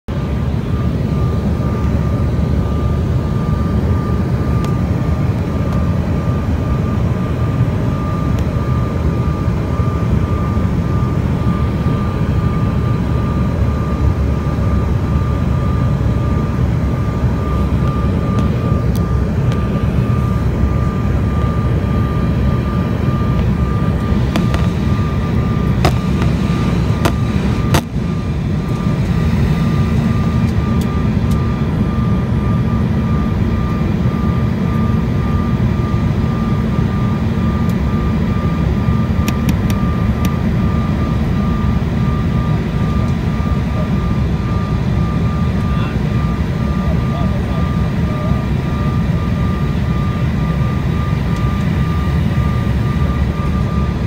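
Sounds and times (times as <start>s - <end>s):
low rumble of jet engines: 0.0s - 54.0s
thin steady whine: 0.1s - 54.0s.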